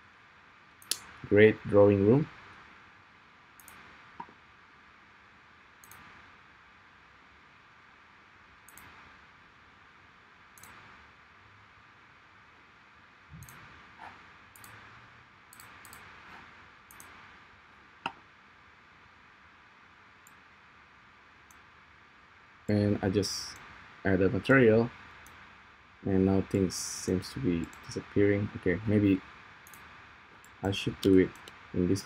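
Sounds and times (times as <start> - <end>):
mouse and keyboard clicks: 10.6 - 10.8, 15.5 - 17.2.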